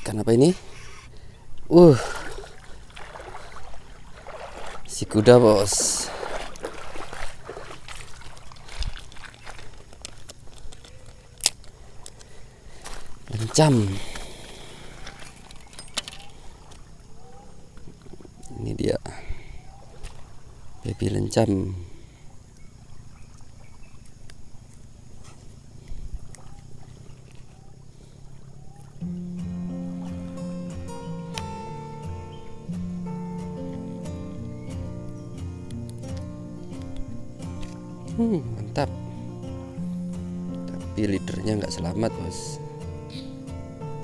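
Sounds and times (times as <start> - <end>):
water lapping on pebbles: 0.0 - 18.6, 19.6 - 29.1
guitar music: 29.0 - 44.0.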